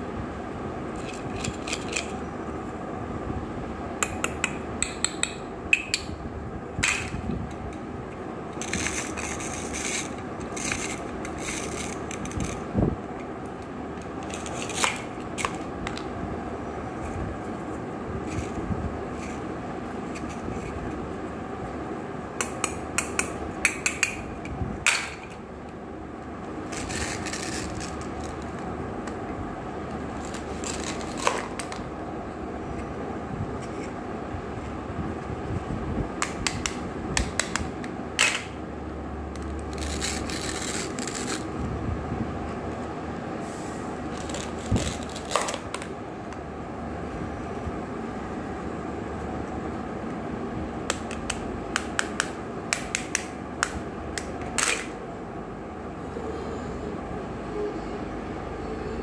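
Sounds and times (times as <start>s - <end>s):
steady low hum: 0.0s - 59.0s
hook-and-loop ripping scrapes: 26.7s - 28.6s, 39.4s - 41.5s.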